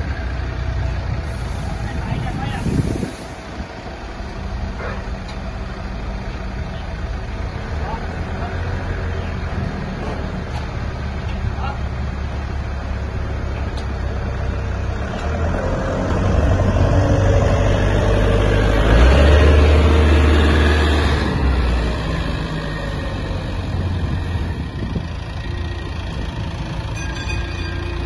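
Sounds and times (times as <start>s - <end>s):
forklift engine running: 0.0s - 28.0s.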